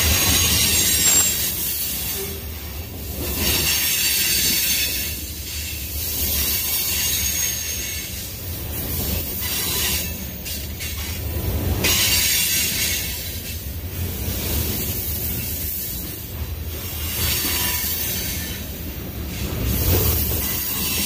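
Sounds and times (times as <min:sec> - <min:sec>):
freight train rolling past: 0:00.0 - 0:21.0
wheels squealing on rails: 0:00.0 - 0:21.0.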